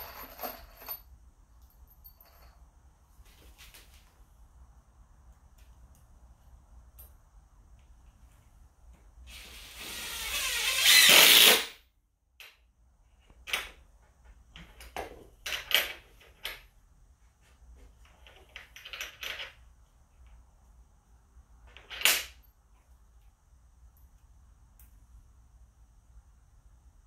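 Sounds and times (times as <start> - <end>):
cordless drill running: 9.3 - 11.7.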